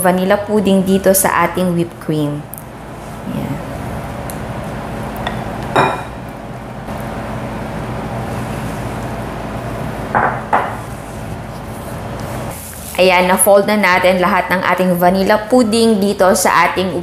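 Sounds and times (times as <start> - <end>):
steady background hum: 0.0 - 17.0
glass clink: 5.3 - 6.2.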